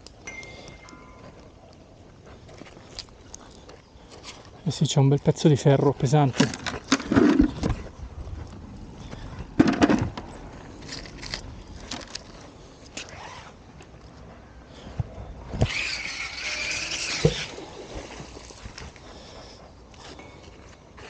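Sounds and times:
squealing scrape: 15.6s - 17.6s.

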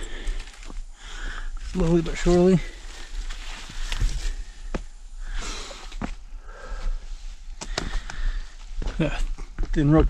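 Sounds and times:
person breathing: 0.0s - 1.7s, 2.6s - 9.5s
footsteps scuffing on rock: 7.6s - 10.0s.

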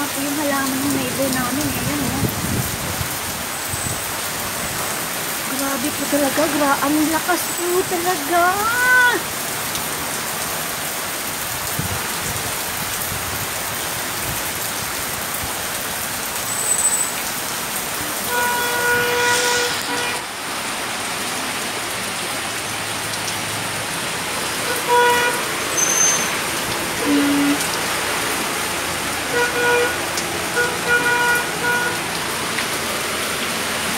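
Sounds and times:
heavy rain pouring: 0.0s - 33.9s
vehicle horn: 18.2s - 20.3s, 24.6s - 26.4s, 29.3s - 32.2s.

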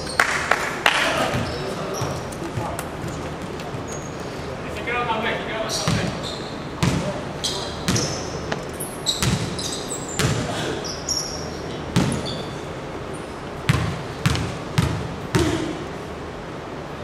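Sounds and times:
sneaker squeaks: 0.0s - 0.3s, 1.1s - 4.5s, 5.7s - 15.8s
basketball bouncing on wooden floor: 9.2s - 9.6s, 12.0s - 12.2s, 13.7s - 15.6s.

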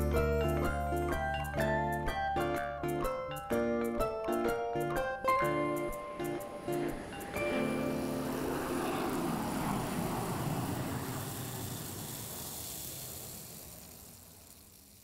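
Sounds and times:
held music chord: 0.0s - 9.6s
rushing airy noise: 5.5s - 15.0s.

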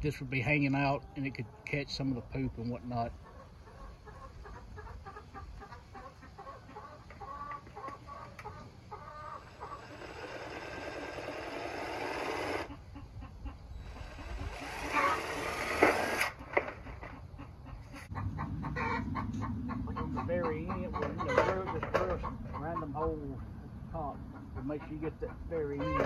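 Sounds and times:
hens clucking: 0.0s - 26.0s
power drill driving screws into tin: 14.6s - 16.4s.

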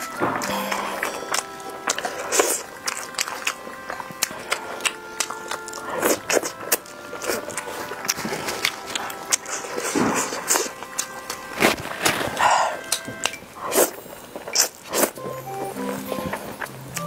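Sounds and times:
lip smacks: 0.0s - 11.8s
faint background music: 0.0s - 17.0s
wet chewing: 0.0s - 17.0s.

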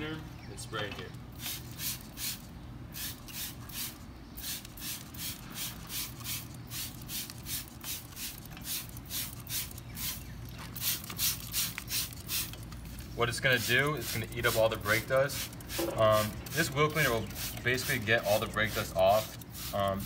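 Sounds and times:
spray bottle hissing: 1.4s - 10.2s, 10.8s - 12.6s, 13.6s - 20.0s.

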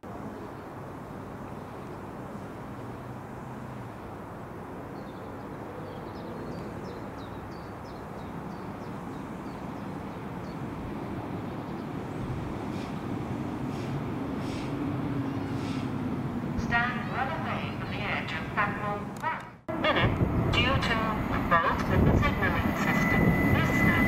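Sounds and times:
low rumble of engines and traffic: 0.0s - 24.0s
small birds chirping: 5.0s - 13.0s, 13.6s - 15.9s.

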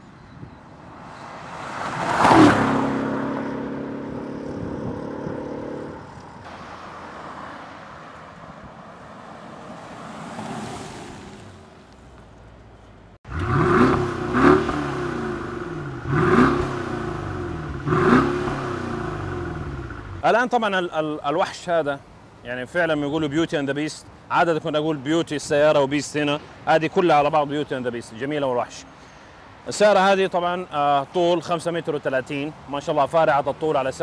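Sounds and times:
car engine accelerating: 1.0s - 6.4s, 13.3s - 20.2s
engine revving blips: 13.3s - 20.2s.

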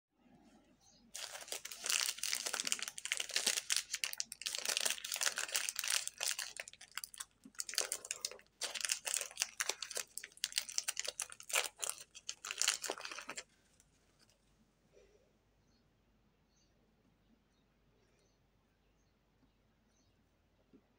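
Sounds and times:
plastic wrapper crinkling and tearing: 1.1s - 14.3s.

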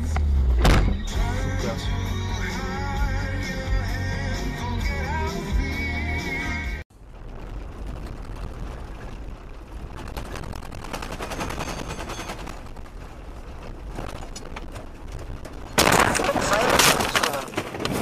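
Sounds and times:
stones crackling under tyres: 6.9s - 18.0s
tyre rumble on gravel: 7.3s - 18.0s.

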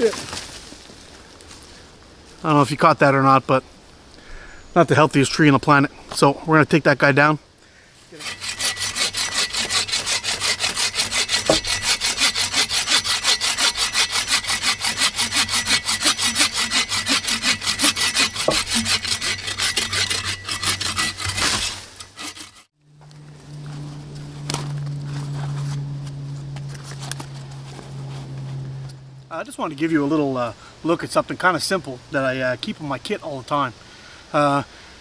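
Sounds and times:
saw cutting through tree trunk: 8.2s - 22.8s.

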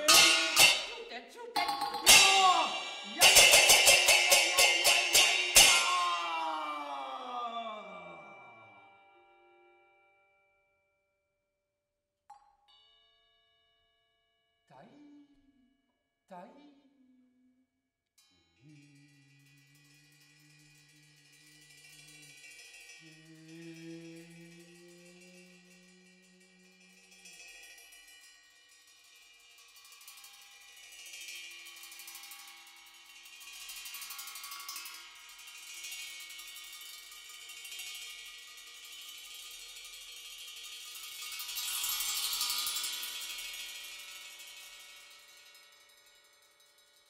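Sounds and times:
small cymbals ringing softly: 0.0s - 10.4s, 18.2s - 47.0s
low held tone: 1.6s - 10.3s, 18.6s - 27.4s.

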